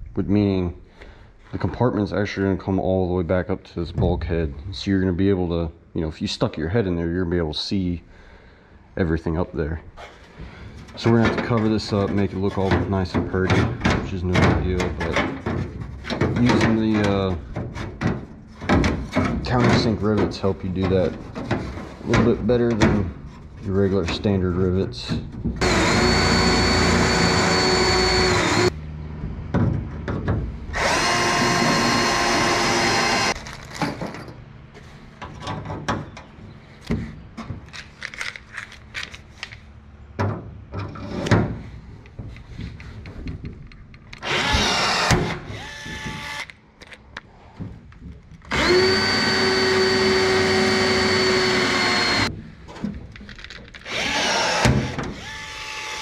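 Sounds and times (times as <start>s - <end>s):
cordless drill drilling metal: 25.6s - 28.7s, 30.7s - 33.4s, 44.2s - 46.5s, 48.5s - 52.3s, 53.8s - 56.0s
clicks and knocks of handled metal: 33.3s - 41.4s, 52.3s - 53.9s.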